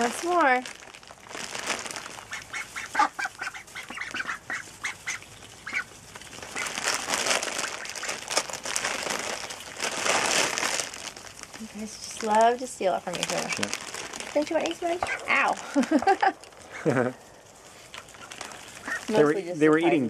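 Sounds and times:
crackling rustle of straw: 0.0s - 20.0s
ducks quacking: 2.3s - 6.8s, 7.4s - 8.2s, 14.9s - 15.6s, 17.9s - 20.0s.

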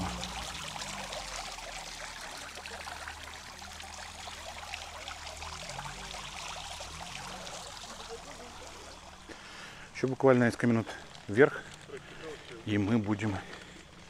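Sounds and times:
low hum: 0.0s - 1.4s
running water splashing: 0.0s - 13.6s.

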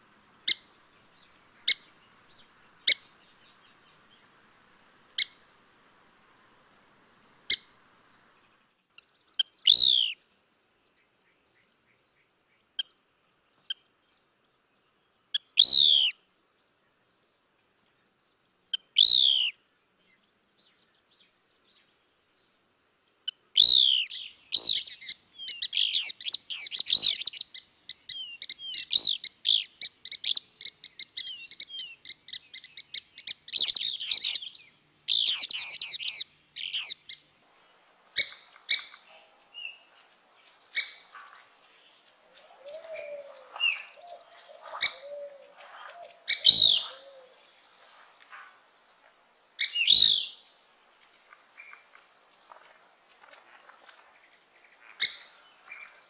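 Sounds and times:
downward sweeping bird calls: 9.6s - 10.2s, 23.6s - 52.6s
rapid bird chirps and trills: 15.0s - 16.2s, 18.7s - 22.6s, 23.3s - 56.0s.

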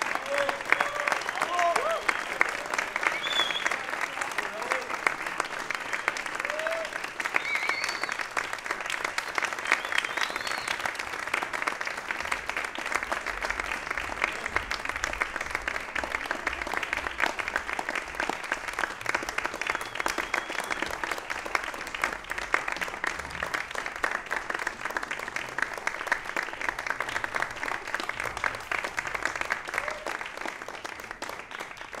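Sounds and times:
concert audience applauding: 0.0s - 32.0s.

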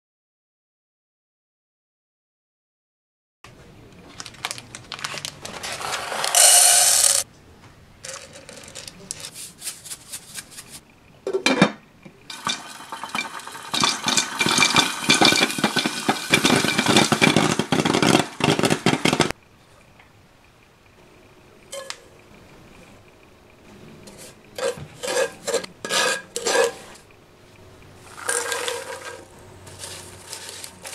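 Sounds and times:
popcorn kernels rattling in pot: 4.2s - 7.2s, 8.0s - 10.8s, 12.3s - 19.3s, 28.0s - 30.9s
popcorn popping: 4.2s - 7.3s, 12.3s - 19.4s, 28.1s - 30.9s.

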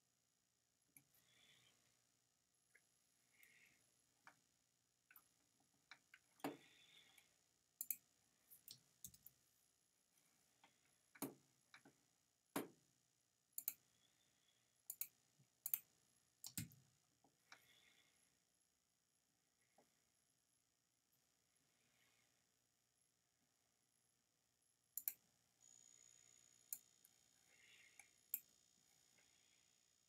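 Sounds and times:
computer mouse clicks: 7.8s - 8.0s, 13.6s - 13.9s, 14.9s - 16.8s, 25.0s - 25.2s.

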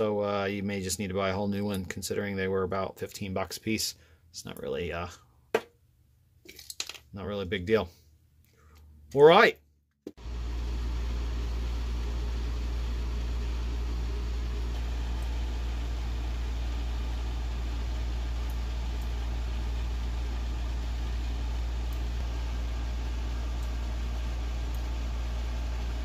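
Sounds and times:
steady low hum: 10.2s - 26.0s.

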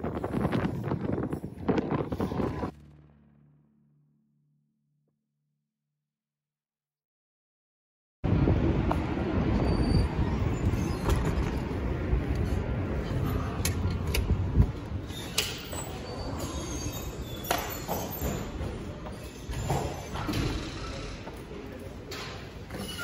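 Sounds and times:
wind rumbling on microphone: 0.0s - 2.8s, 8.2s - 16.0s
city noise: 8.2s - 23.0s.

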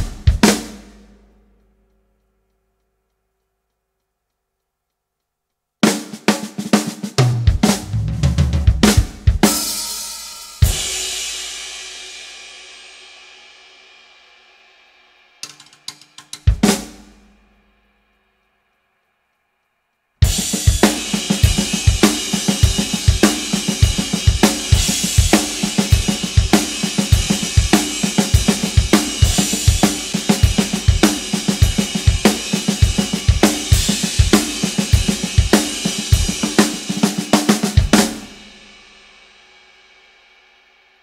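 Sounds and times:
drum kit groove: 0.0s - 1.9s, 5.8s - 13.4s, 15.4s - 17.5s, 20.2s - 39.5s
cymbals ringing out: 9.4s - 13.5s.

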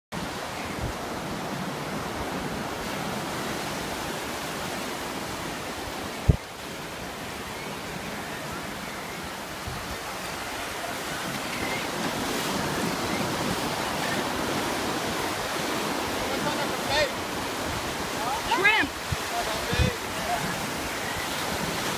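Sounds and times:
ocean surf breaking: 0.2s - 21.9s.

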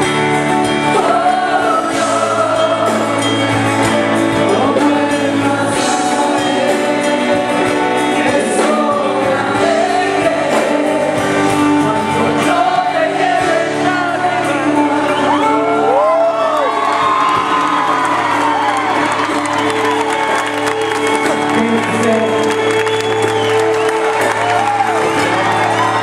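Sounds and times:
live band accompaniment: 0.0s - 26.0s
backing vocalists singing: 0.6s - 19.2s.

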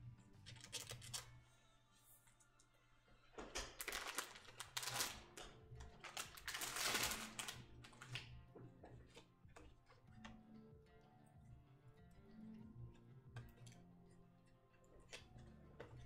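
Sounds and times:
plastic sleeve scraping and rustling: 3.8s - 8.1s.

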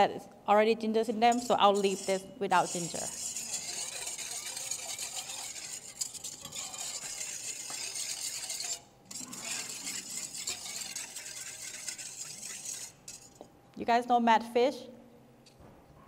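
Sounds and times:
whisk scraping metal bowl: 1.2s - 13.5s.

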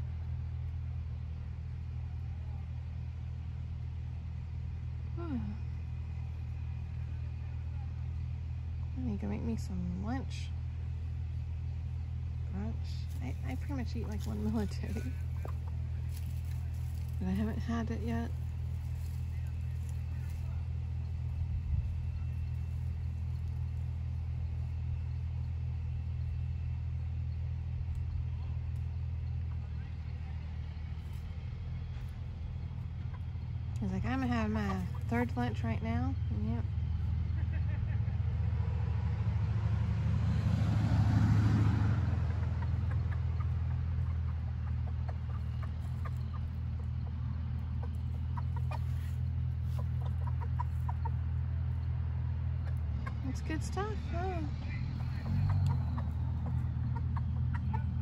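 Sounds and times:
low hum: 0.0s - 58.0s
low mechanical rumble: 0.0s - 58.0s
chicken clucking softly: 13.8s - 17.2s, 42.2s - 51.9s, 54.8s - 58.0s.

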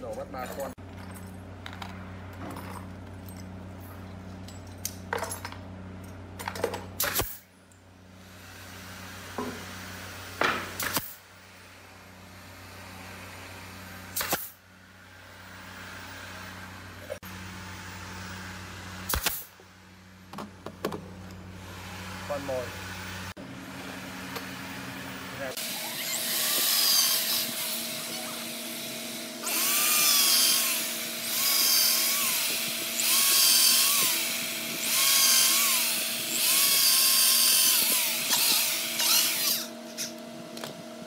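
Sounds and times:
nail gun shots: 10.4s - 11.2s, 14.2s - 14.6s, 19.1s - 19.5s.

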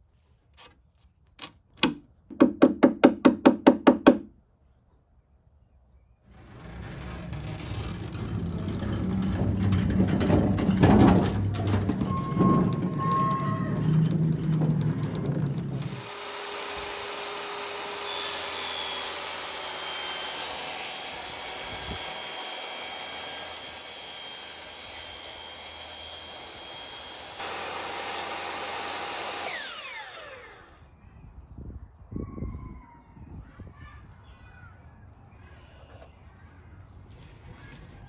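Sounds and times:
low rumbling: 6.2s - 16.0s
table saw cutting plywood: 15.7s - 30.8s
saw blade spinning down: 15.8s - 30.8s.

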